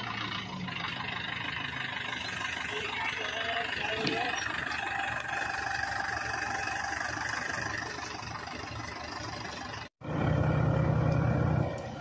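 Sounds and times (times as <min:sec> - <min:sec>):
tractor diesel engine droning: 0:00.0 - 0:12.0.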